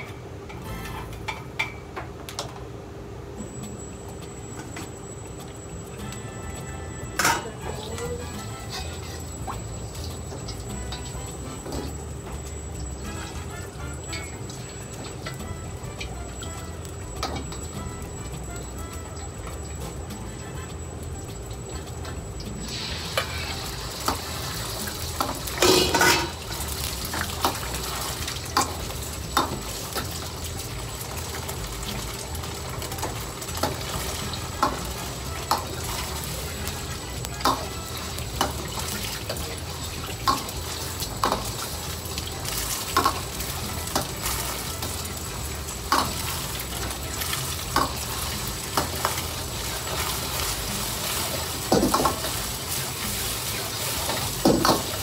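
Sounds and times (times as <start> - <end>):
egg sizzling in hot oil: 6.0 - 55.0
metal ladle scraping wok: 8.6 - 9.3, 25.2 - 28.7
ladle clattering: 25.2 - 26.5.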